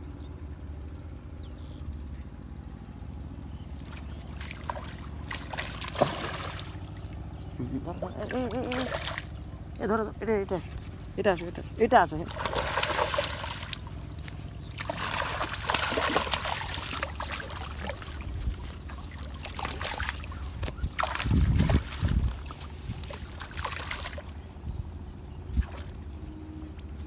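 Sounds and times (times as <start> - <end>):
water splashing and sloshing: 2.6 - 27.0.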